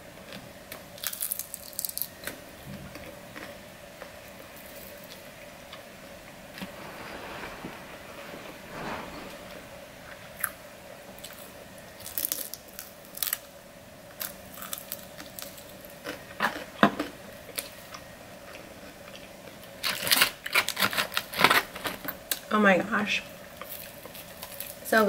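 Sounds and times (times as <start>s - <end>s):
crunching fried chicken: 0.3s - 2.4s, 12.0s - 13.5s, 14.2s - 18.0s, 23.6s - 24.9s.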